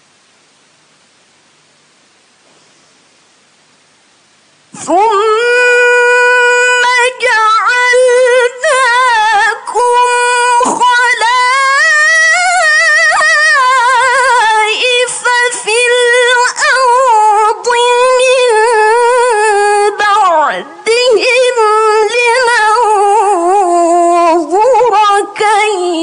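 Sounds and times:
woman reciting melodically: 0:04.8 - 0:26.0.

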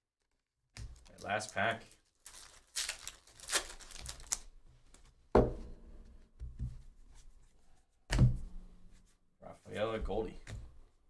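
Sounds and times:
foil wrapper crinkling: 0:01.0 - 0:04.5.

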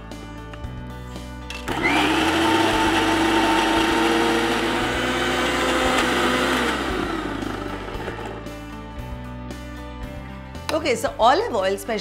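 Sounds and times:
electric mixer grinder running: 0:01.7 - 0:08.6.

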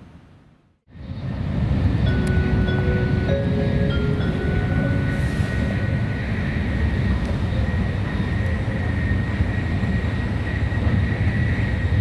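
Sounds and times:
train cabin rumble: 0:01.0 - 0:12.0
faint steady high tone: 0:02.0 - 0:06.5.

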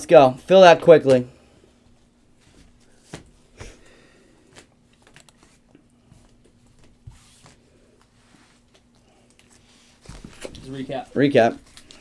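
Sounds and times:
faint steady hum: 0:00.0 - 0:12.0
trading cards and wrappers rustling: 0:08.0 - 0:12.0.

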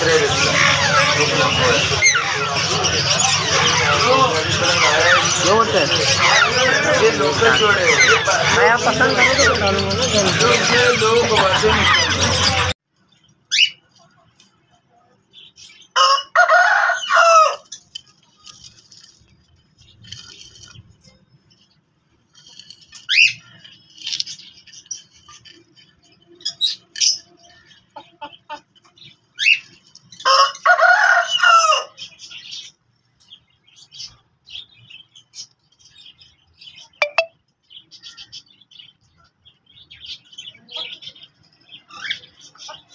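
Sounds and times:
harsh bird calls: 0:00.0 - 0:42.9.

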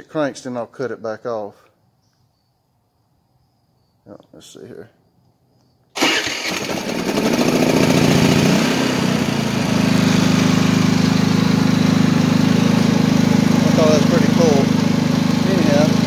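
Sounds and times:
generator engine starting and running: 0:06.0 - 0:16.0.

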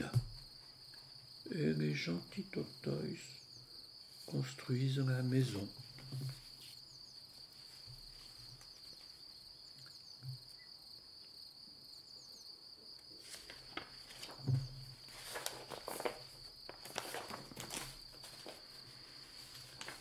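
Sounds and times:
crickets trilling: 0:00.0 - 0:20.0
paper book pages rustling: 0:13.1 - 0:20.0.

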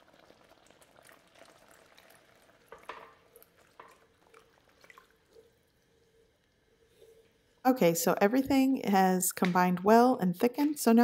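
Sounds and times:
broth pouring into skillet: 0:00.0 - 0:07.7
gravy bubbling: 0:00.0 - 0:07.7.

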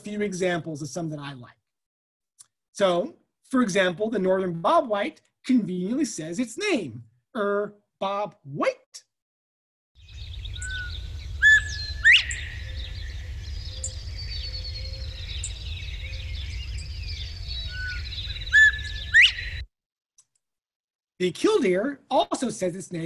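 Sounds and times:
birds singing: 0:10.0 - 0:19.6
low rumble: 0:10.1 - 0:15.8
bobwhite whistled call: 0:10.4 - 0:19.6.

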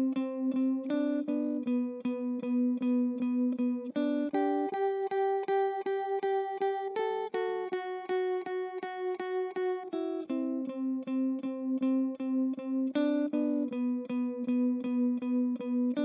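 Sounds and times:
guitar picked through delay: 0:00.0 - 0:16.0.

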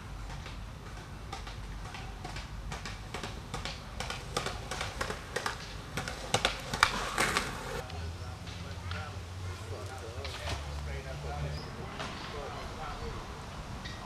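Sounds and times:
skateboard wheels clacking on concrete: 0:00.1 - 0:07.8.

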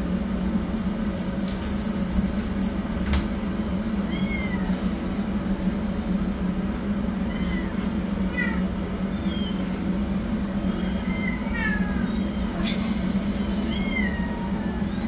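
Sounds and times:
steady low hum: 0:00.0 - 0:15.0
kittens mewing: 0:07.2 - 0:09.6, 0:10.4 - 0:15.0.

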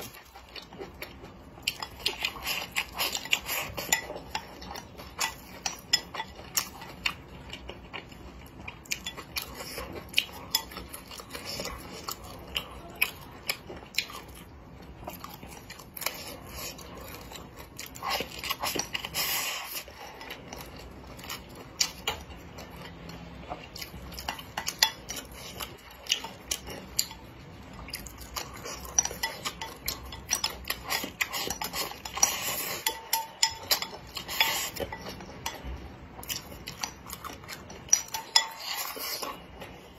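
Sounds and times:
chewing: 0:00.0 - 0:39.9.

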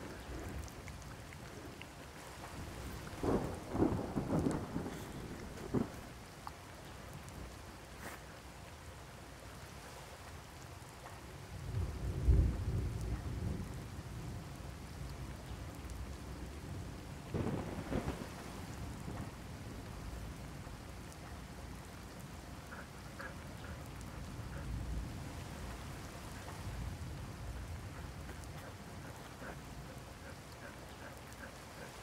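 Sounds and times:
steady rain: 0:00.0 - 0:32.0
thunder rumbling: 0:02.5 - 0:06.3, 0:11.7 - 0:21.0.

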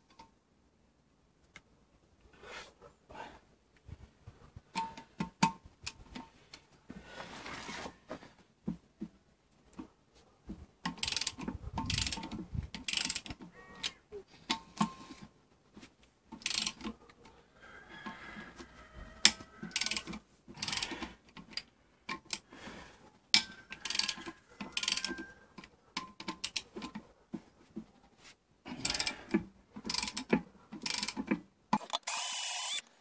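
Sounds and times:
ratchet wrench clicking: 0:11.0 - 0:13.3, 0:16.4 - 0:16.8, 0:19.8 - 0:20.9, 0:31.8 - 0:32.9.

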